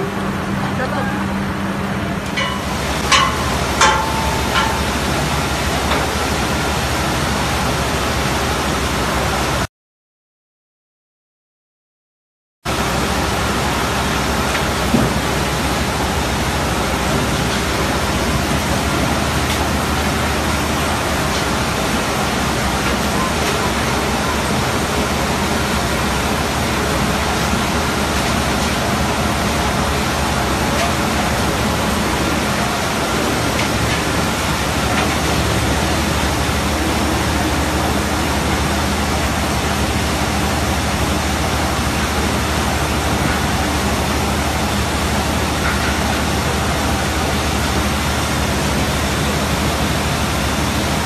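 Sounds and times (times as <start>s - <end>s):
slurry rushing through pipes: 12.7s - 51.0s.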